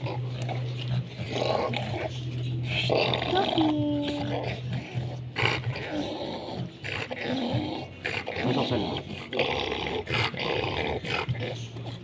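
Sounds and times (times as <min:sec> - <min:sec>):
dogs vocalising in bursts: 0:00.0 - 0:12.0.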